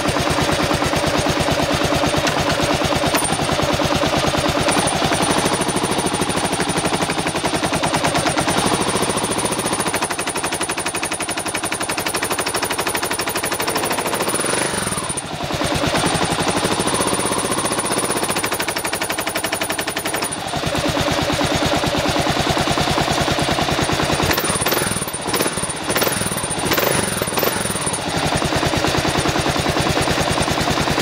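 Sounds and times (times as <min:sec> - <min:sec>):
motorcycle engine clacking knock: 0:00.1 - 0:15.3, 0:23.8 - 0:30.6.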